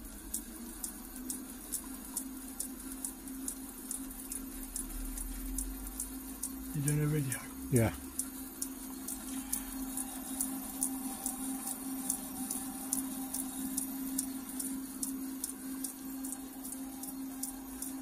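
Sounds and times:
light regular ticking: 0:00.0 - 0:18.0
metal lathe humming: 0:05.3 - 0:18.0.

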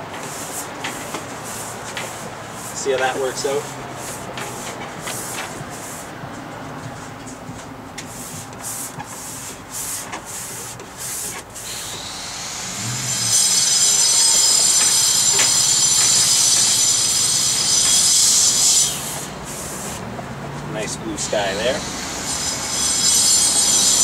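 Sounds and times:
paintbrush scrubbing on canvas: 0:00.2 - 0:06.1, 0:08.1 - 0:11.6
high hiss with squealing tones: 0:11.6 - 0:19.6, 0:20.8 - 0:24.0.

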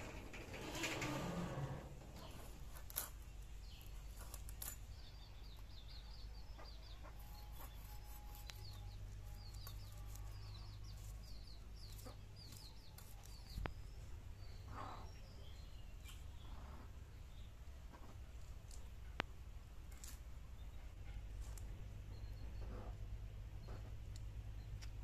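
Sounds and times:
chickens peeping: 0:05.2 - 0:18.2.

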